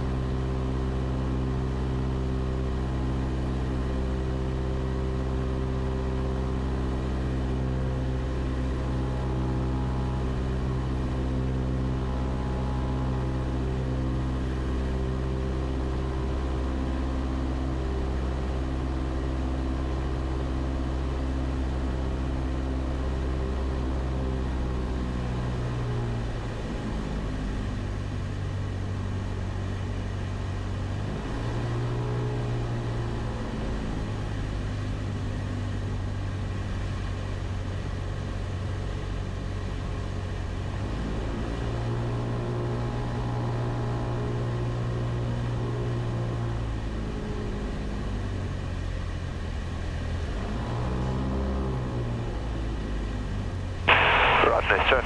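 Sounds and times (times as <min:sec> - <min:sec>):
aircraft engine drone: 0:53.9 - 0:55.0.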